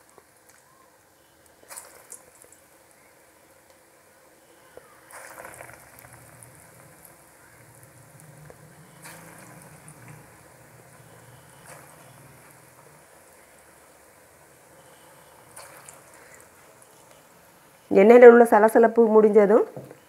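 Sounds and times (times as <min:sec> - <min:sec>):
hot oil sizzling: 0:00.0 - 0:18.7
dough dropped into fizzing oil: 0:01.6 - 0:02.6, 0:05.0 - 0:07.8.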